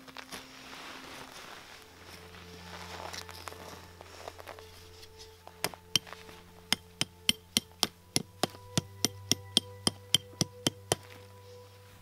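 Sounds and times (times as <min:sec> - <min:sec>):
hatchet tapping metal stake: 0:05.6 - 0:11.1.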